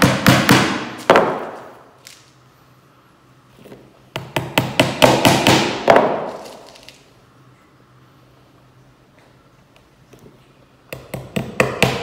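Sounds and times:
hammer tapping tacks: 0:04.1 - 0:06.1, 0:10.9 - 0:12.0.

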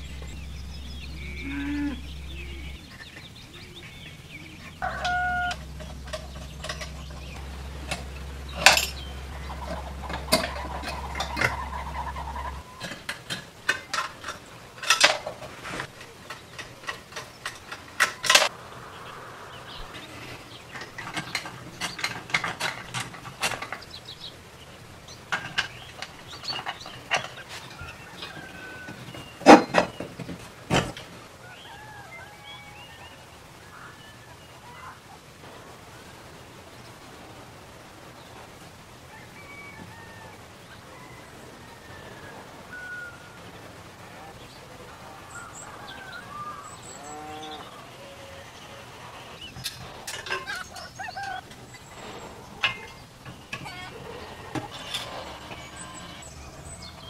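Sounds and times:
metal parts clicking and clinking: 0:04.8 - 0:18.5, 0:20.7 - 0:23.9, 0:49.6 - 0:56.2.

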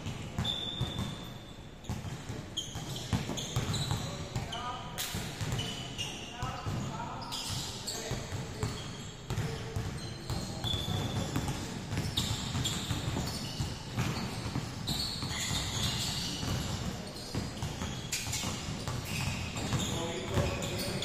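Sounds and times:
basketballs bouncing in a gym: 0:00.0 - 0:21.0
sneaker squeaks: 0:00.0 - 0:21.0.

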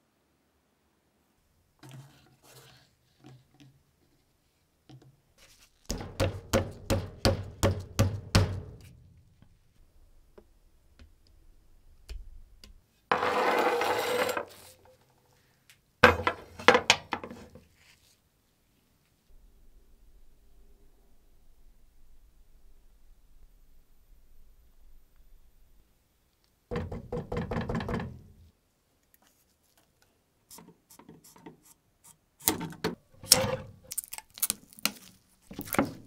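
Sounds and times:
rubbing or scraping noise: 0:13.1 - 0:15.1.

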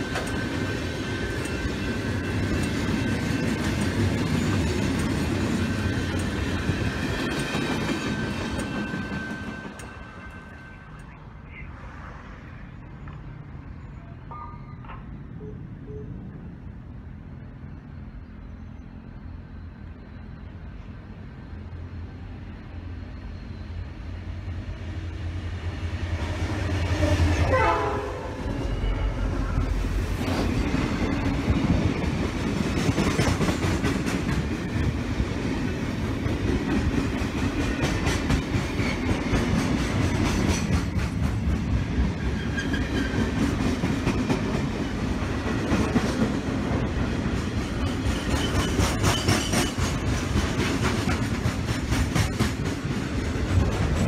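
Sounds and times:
wheels clacking over rail joints: 0:00.0 - 0:11.2
train wheel rumble: 0:00.0 - 0:11.7, 0:16.3 - 0:54.0
locomotive engine drone: 0:00.0 - 0:32.8.

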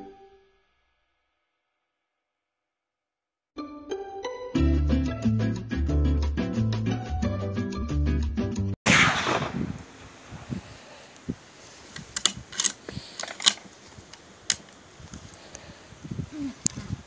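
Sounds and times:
background music: 0:03.6 - 0:08.8
loud rushing burst: 0:08.9 - 0:11.1
rifle clicks and knocks: 0:11.8 - 0:15.2.

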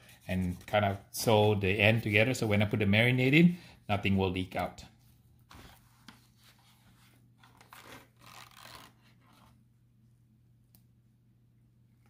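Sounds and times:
plastic gloves rustling and scraping: 0:05.0 - 0:09.6.

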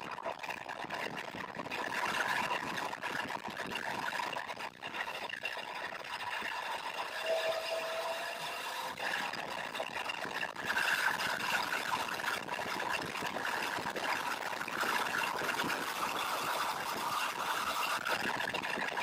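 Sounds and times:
car engine and road noise: 0:06.6 - 0:09.0.

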